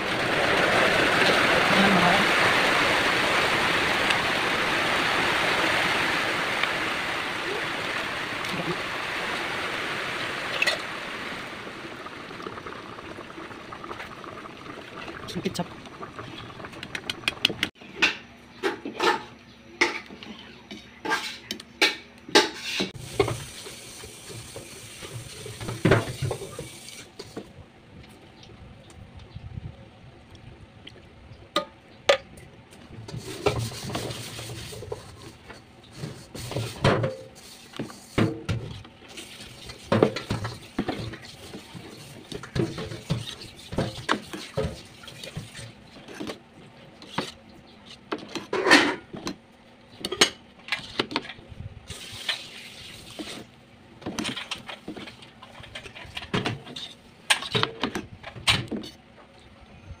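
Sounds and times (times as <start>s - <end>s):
wooden spatula scraping a pot: 33.1s - 49.0s.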